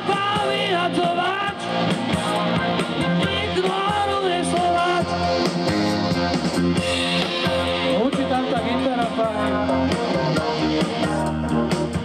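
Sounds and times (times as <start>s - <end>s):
lead vocal singing: 0.0s - 5.4s
rock band playing: 0.0s - 12.0s.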